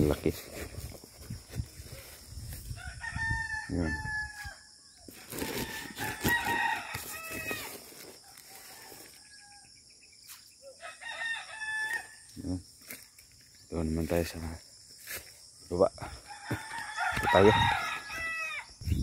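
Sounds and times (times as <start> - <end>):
rooster crowing: 2.7 - 4.8, 5.4 - 9.8, 10.7 - 12.2, 16.0 - 18.8.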